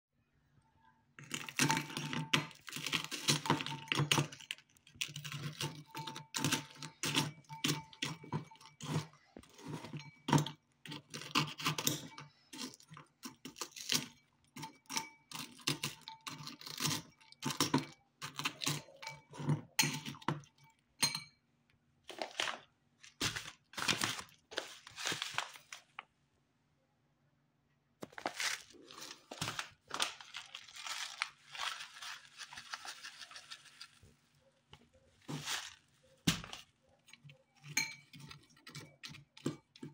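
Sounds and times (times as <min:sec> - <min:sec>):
biscuit crunching: 0:01.2 - 0:20.2, 0:28.0 - 0:39.9
fork clinking against glass bowl: 0:05.5 - 0:13.1.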